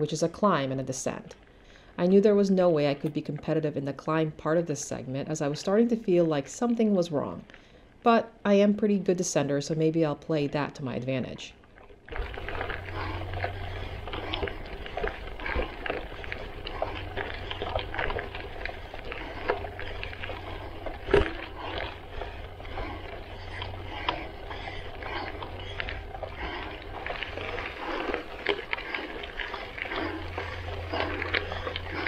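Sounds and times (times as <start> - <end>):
bike tyres crunching on gravel: 12.1 - 32.0
steady low rumble: 12.1 - 32.0
stones ticking and rattling: 12.1 - 32.0.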